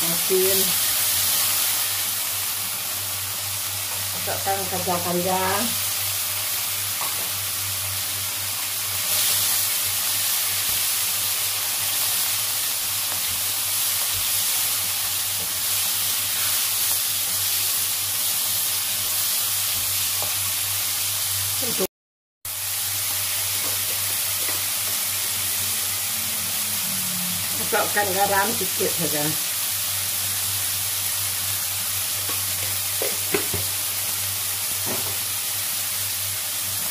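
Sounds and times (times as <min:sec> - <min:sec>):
vegetables sizzling in hot oil: 0:00.0 - 0:21.9, 0:22.5 - 0:36.9.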